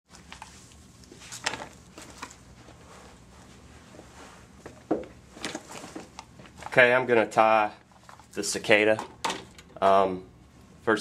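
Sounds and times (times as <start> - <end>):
low steady hum: 0.1 - 11.0.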